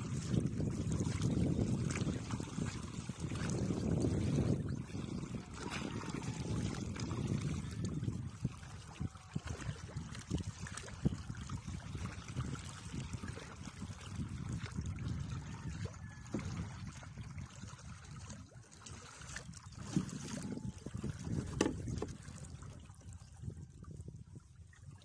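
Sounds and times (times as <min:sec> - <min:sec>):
water lapping against canoe hull: 0:00.0 - 0:25.0
light knocks and splashes: 0:18.2 - 0:22.7.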